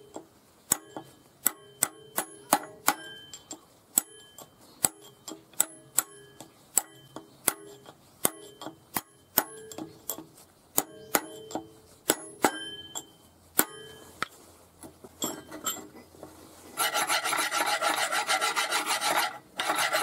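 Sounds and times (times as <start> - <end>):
hammer tapping steel rod: 0.0 - 14.0.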